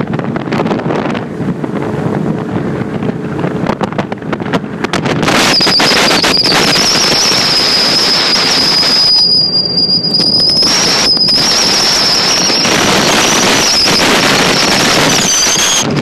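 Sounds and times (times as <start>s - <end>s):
motorboat under way: 0.0s - 16.0s
wind rushing over microphone: 0.0s - 16.0s
high-pitched whistle: 5.3s - 15.9s.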